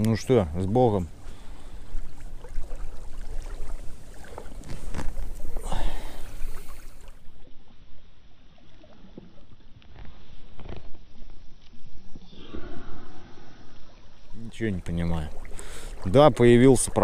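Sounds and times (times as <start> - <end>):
water lapping at shore: 0.0 - 17.0
fishing tackle knocks and rustles: 4.2 - 5.6.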